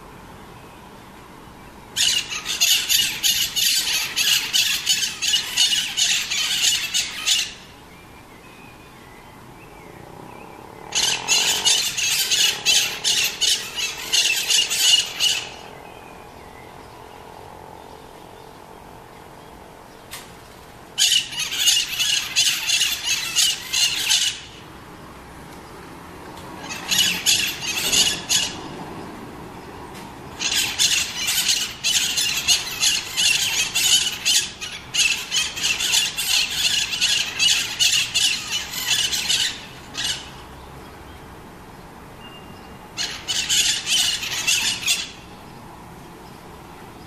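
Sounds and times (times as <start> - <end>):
parrots screeching: 2.0 - 7.7, 10.9 - 15.8, 21.0 - 24.6, 26.6 - 28.7, 30.4 - 40.4, 43.0 - 45.2.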